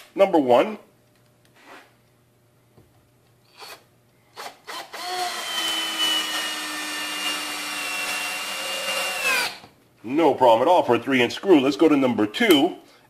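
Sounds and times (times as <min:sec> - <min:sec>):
drill motor whining: 0:04.4 - 0:09.6.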